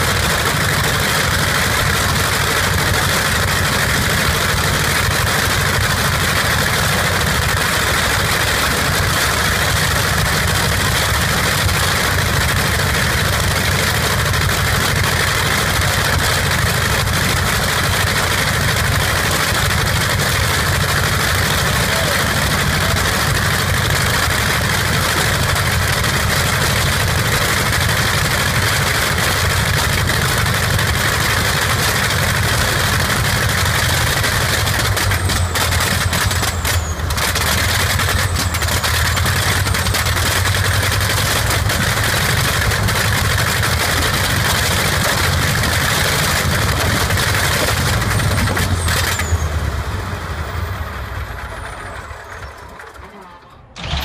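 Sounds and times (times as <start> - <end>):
radial aircraft engine running: 0.0 - 54.0.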